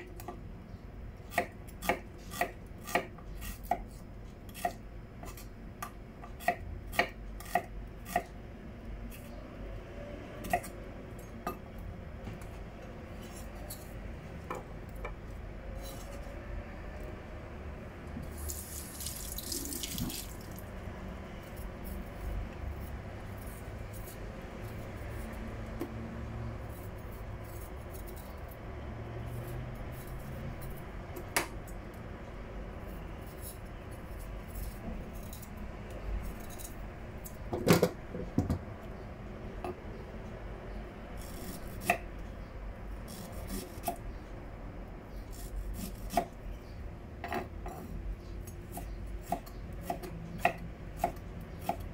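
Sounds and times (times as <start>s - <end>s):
tap water running into sink: 18.4s - 20.6s.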